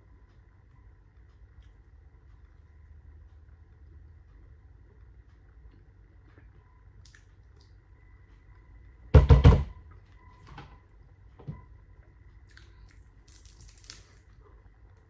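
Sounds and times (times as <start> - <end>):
loud knocks: 9.1 - 9.8.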